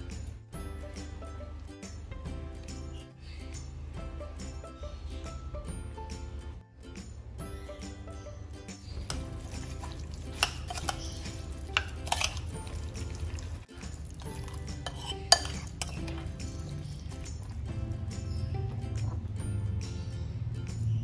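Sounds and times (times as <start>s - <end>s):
fork stirring wet food: 8.9s - 18.0s
fork clinking against bowl: 9.0s - 13.4s, 14.2s - 16.7s.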